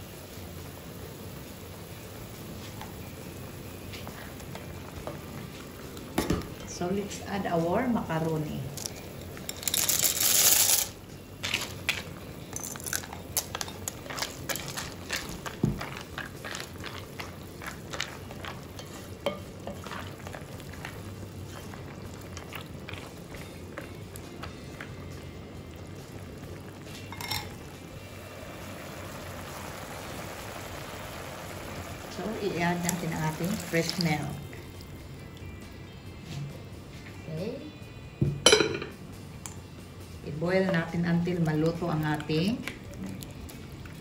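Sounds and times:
soup bubbling: 0:11.8 - 0:35.8
glass lid clink: 0:27.1 - 0:27.6, 0:38.3 - 0:39.0.

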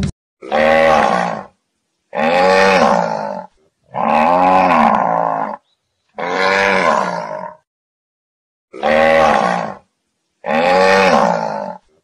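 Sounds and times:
bull bellowing: 0:00.4 - 0:01.5, 0:02.1 - 0:05.6, 0:06.2 - 0:07.6, 0:08.7 - 0:09.8, 0:10.4 - 0:12.0.

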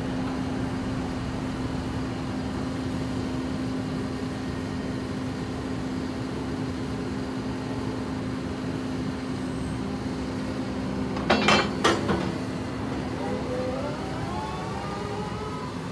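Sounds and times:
rising whine: 0:12.8 - 0:15.9.

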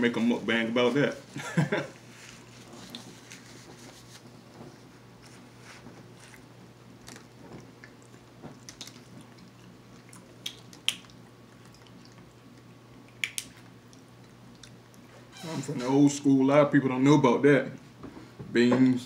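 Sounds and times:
quiet chewing: 0:06.0 - 0:15.2.

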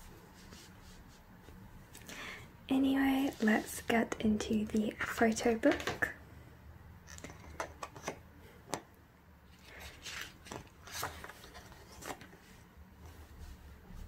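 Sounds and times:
page turning rustle: 0:09.5 - 0:12.6.

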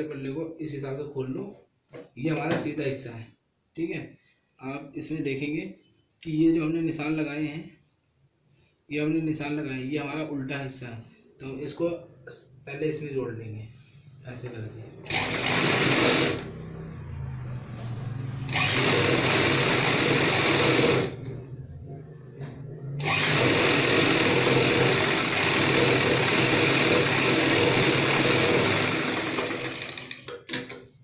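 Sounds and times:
sewing machine stitching: 0:15.0 - 0:16.5, 0:18.5 - 0:21.3, 0:23.0 - 0:30.8.

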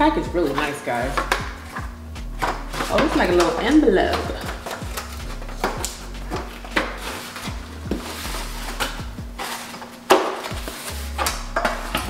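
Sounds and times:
soft background music: 0:00.0 - 0:12.0
cardboard rustling: 0:00.4 - 0:12.0.

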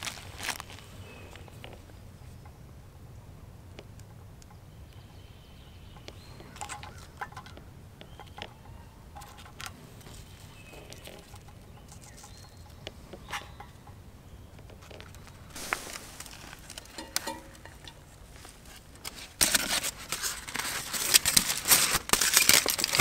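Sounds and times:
low steady background noise: 0:00.0 - 0:23.0
faint bird calling: 0:00.6 - 0:03.4, 0:04.2 - 0:16.2.

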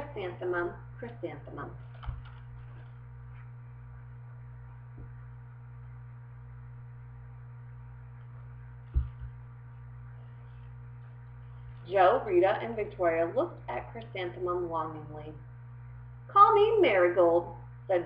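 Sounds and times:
mains hum: 0:00.0 - 0:18.0
book knock: 0:08.9 - 0:09.4.

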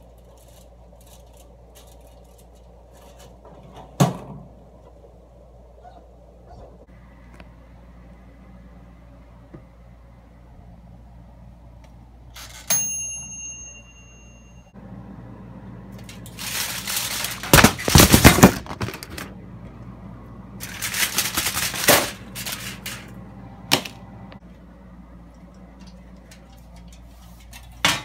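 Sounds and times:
timer bell ding: 0:12.7 - 0:14.8
loud clattering and rustling: 0:16.1 - 0:19.3, 0:20.6 - 0:23.2.

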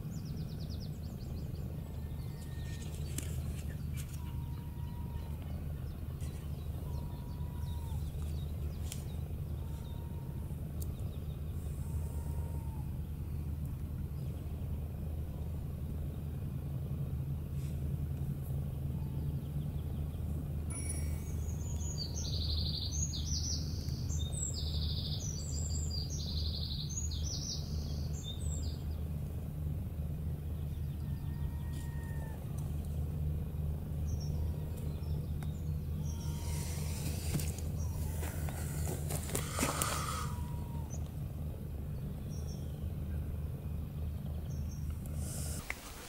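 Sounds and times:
low outdoor rumble: 0:00.0 - 0:46.0
songbird chirping: 0:18.8 - 0:29.4.

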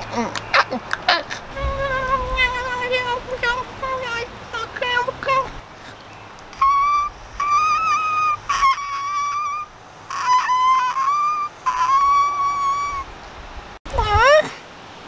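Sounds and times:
man squealing in high voice: 0:06.6 - 0:13.1.

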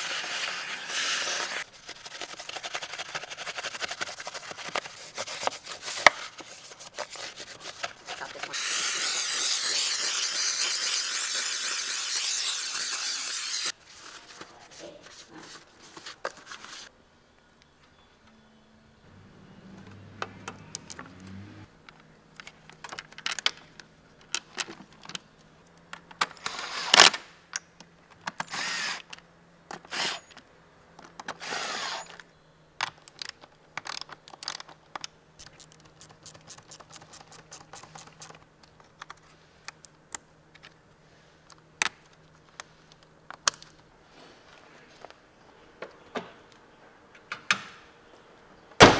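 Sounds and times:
plastic parts clicking and knocking: 0:21.8 - 0:26.4, 0:32.8 - 0:39.9.

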